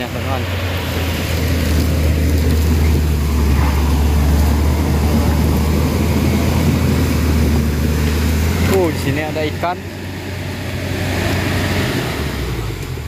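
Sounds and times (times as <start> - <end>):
excavator diesel engine droning: 0.0 - 13.0.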